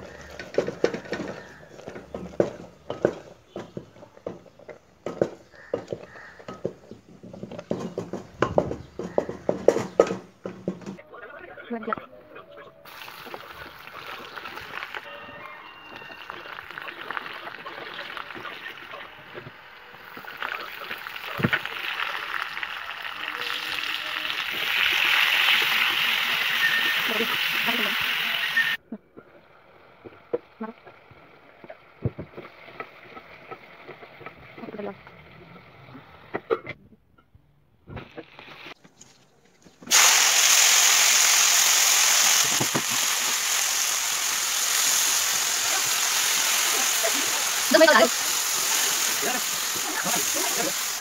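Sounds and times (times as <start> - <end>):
wooden spatula stirring: 0.0 - 8.3
vegetables sizzling in a wok: 12.9 - 36.3, 39.8 - 51.0.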